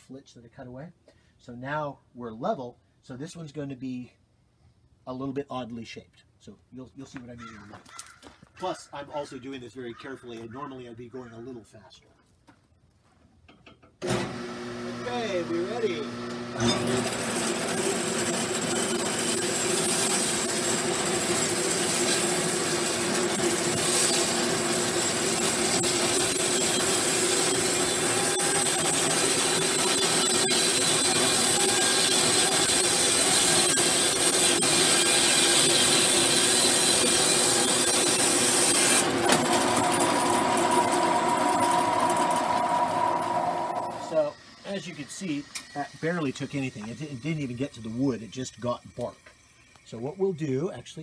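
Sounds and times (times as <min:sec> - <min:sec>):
band saw cutting log: 0:14.0 - 0:49.4
steady machine hum: 0:39.0 - 0:47.9.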